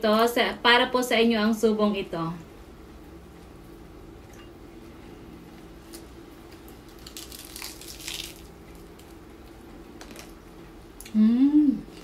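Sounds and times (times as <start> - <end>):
crunchy bites of chicken skin: 6.7 - 9.2.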